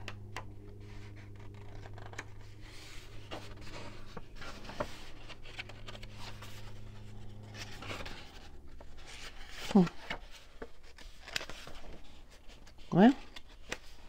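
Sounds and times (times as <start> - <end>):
low hum: 0.0 - 14.0
book pages rustling: 0.1 - 14.0.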